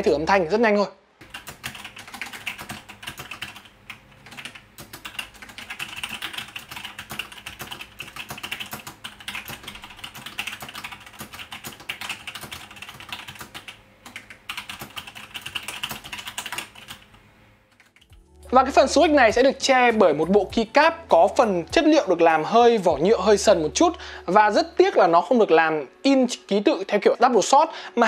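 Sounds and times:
mechanical keyboard typing: 0:01.2 - 0:18.2.

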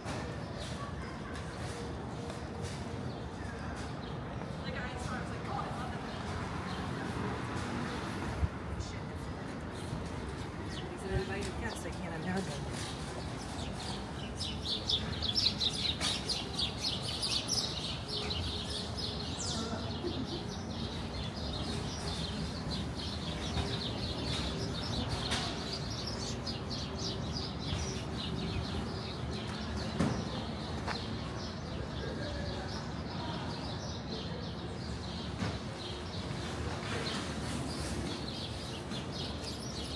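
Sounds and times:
low street hum: 0:00.0 - 0:39.9
small birds chirping: 0:08.8 - 0:39.9.

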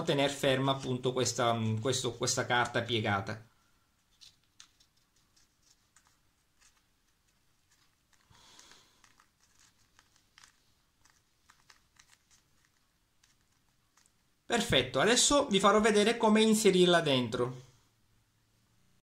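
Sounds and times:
soft paper rustle: 0:03.6 - 0:14.7
faint masking tape crinkling: 0:03.8 - 0:14.5.

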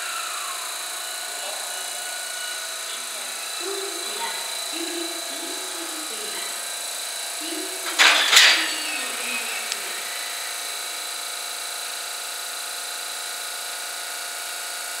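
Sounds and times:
hum of train equipment: 0:00.0 - 0:12.4
rattle and hiss: 0:00.0 - 0:14.9
train couplers clanking: 0:07.4 - 0:10.8.

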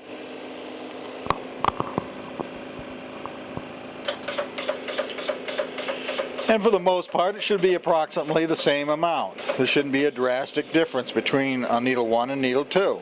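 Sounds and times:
analyzer humming: 0:00.8 - 0:05.1
rapid pump pulses: 0:01.3 - 0:11.2
machine clicks: 0:03.6 - 0:06.6.

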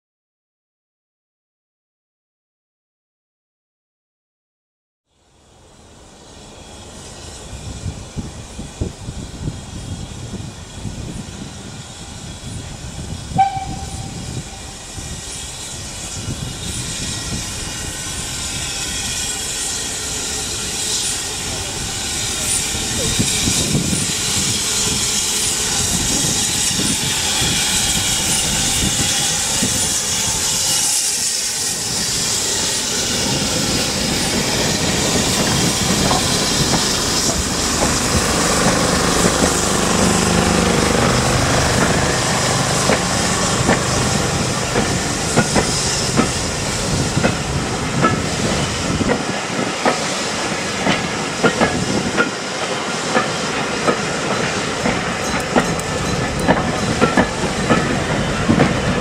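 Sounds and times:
train coaches rolling: 0:05.6 - 0:59.0
steam hissing: 0:06.0 - 0:59.0
wheels clicking over rail joints: 0:41.6 - 0:59.0.

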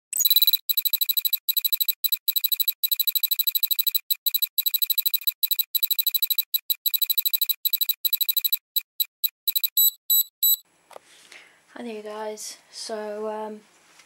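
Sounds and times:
high-pitched electronic beeping: 0:00.1 - 0:10.6.

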